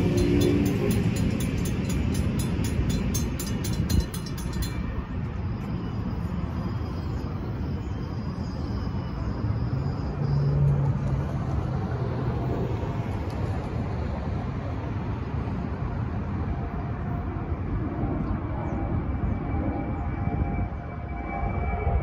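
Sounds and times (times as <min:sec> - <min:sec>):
crossing bells ringing fast: 0:00.0 - 0:07.7
rumble of passing traffic: 0:00.0 - 0:22.0.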